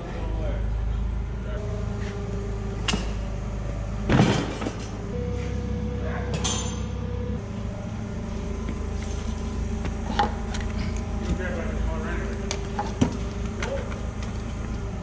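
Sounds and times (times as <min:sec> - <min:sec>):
steady low hum: 0:00.0 - 0:15.0
metal car parts clanking: 0:04.1 - 0:05.0, 0:06.3 - 0:07.0, 0:09.0 - 0:15.0.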